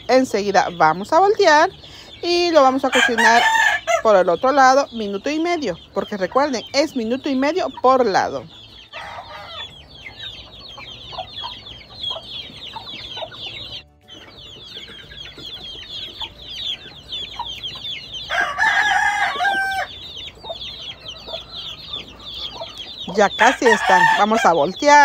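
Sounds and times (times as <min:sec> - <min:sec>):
chickens chirping: 0:00.0 - 0:25.0
rooster crowing: 0:02.9 - 0:04.1, 0:08.9 - 0:09.7, 0:18.3 - 0:20.0, 0:23.4 - 0:24.6.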